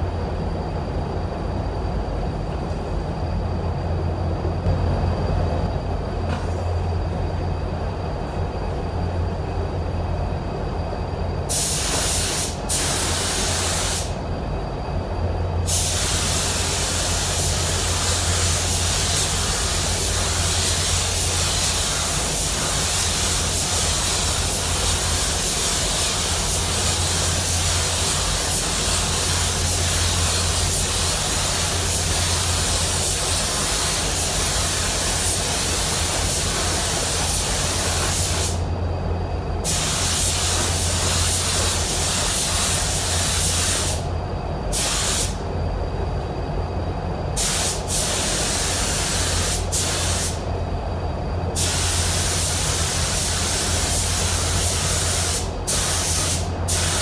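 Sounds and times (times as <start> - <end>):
steady low hum: 0.0 - 57.0
paint spray gun hissing: 11.5 - 14.2, 15.7 - 38.6, 39.6 - 44.1, 44.7 - 45.4, 47.4 - 50.4, 51.6 - 57.0.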